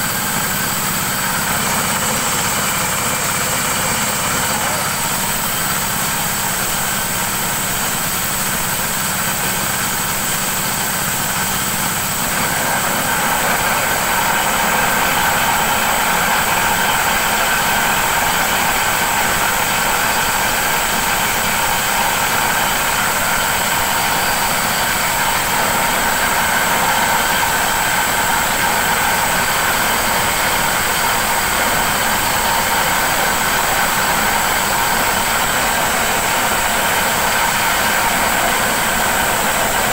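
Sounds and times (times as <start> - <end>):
forage chopper running: 0.0 - 39.9.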